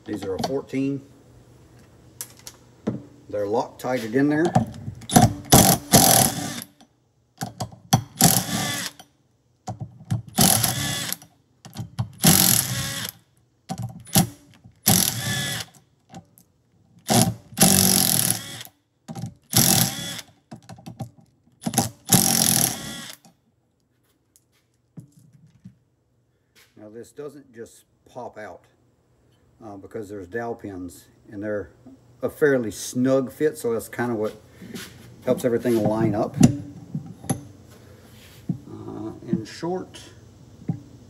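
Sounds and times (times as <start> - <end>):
impact driver bursts: 5.1 - 6.8, 8.1 - 9.0, 10.3 - 11.2, 12.2 - 13.2, 14.1 - 15.8, 17.1 - 18.7, 19.5 - 20.3, 21.6 - 23.2.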